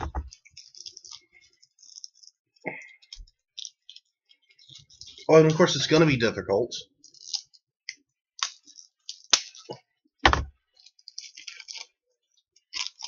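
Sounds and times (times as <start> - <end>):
plastic packaging crackling: 0.0 - 6.2, 10.8 - 12.0
dull knock: 10.2 - 10.5.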